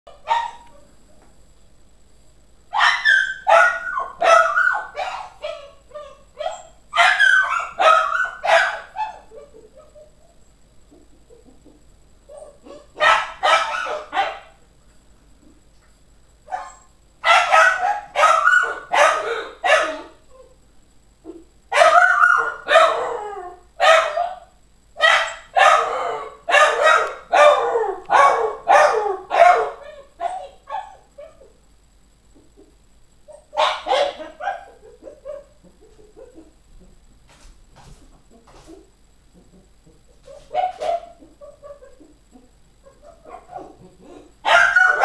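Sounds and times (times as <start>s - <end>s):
dog yelping and whining: 2.8s - 10.4s, 12.3s - 14.4s, 16.5s - 20.6s, 21.8s - 24.4s, 25.0s - 31.6s, 33.3s - 36.5s, 40.2s - 45.0s.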